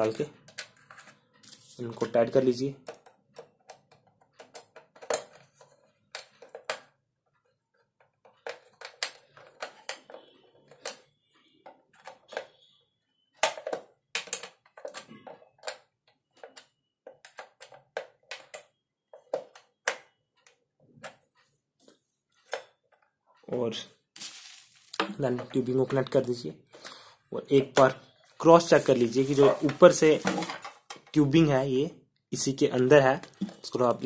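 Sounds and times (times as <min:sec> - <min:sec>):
screwdriver clicking and scraping on metal: 0:02.9 - 0:06.8, 0:07.7 - 0:11.0.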